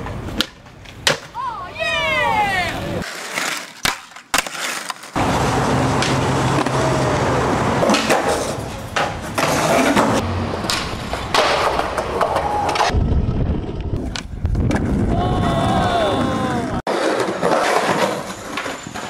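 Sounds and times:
skateboard wheels rolling on concrete: 0:00.0 - 0:19.0
skateboard clacks: 0:02.6 - 0:13.0.

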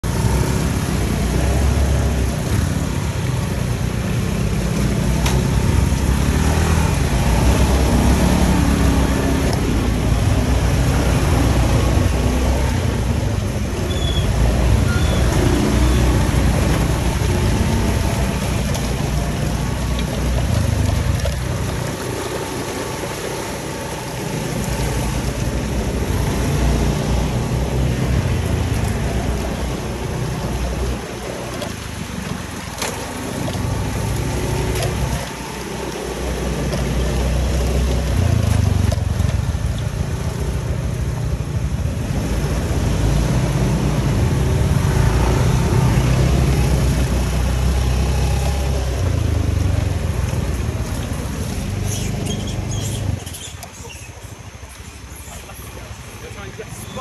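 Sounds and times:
motor scooter engine: 0:00.1 - 0:53.2.

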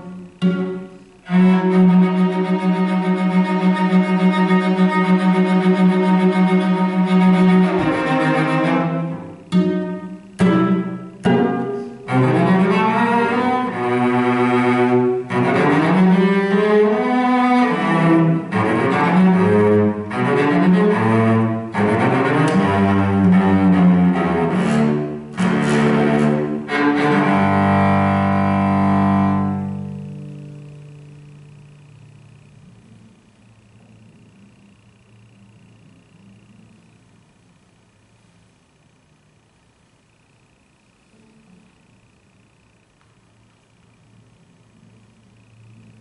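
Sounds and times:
bowed cello: 0:00.0 - 0:33.1.

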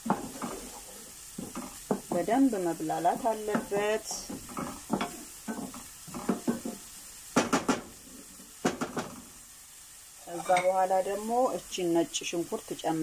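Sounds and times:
wooden spatula scraping a frying pan: 0:00.0 - 0:09.4, 0:10.2 - 0:11.2
onions sizzling: 0:00.0 - 0:13.0.

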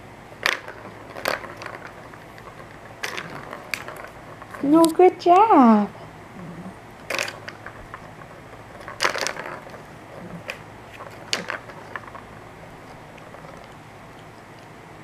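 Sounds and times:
ball clattering in plastic track: 0:00.4 - 0:05.4, 0:07.0 - 0:13.8.

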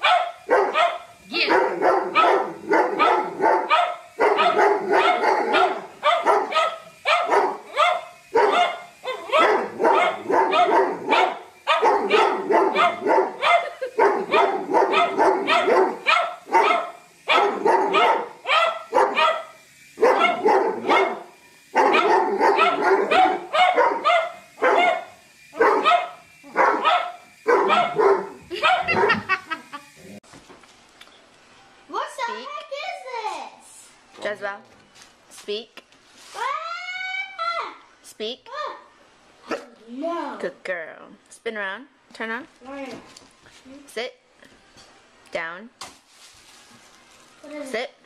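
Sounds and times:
dog barking: 0:00.0 - 0:29.3.

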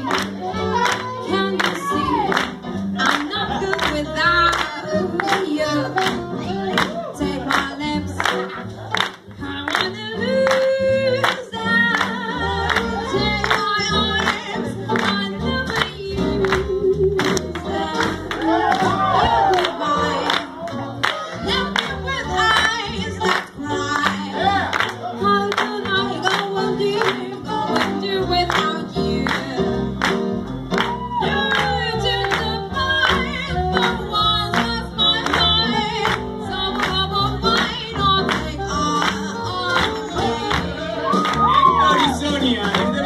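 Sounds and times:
woman singing: 0:00.0 - 0:08.5, 0:09.3 - 0:30.1, 0:30.8 - 0:43.0
swing band playing: 0:00.0 - 0:43.0.

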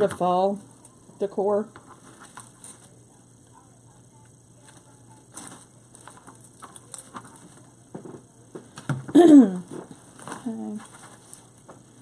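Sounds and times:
small clicks and rustling: 0:04.6 - 0:08.9.

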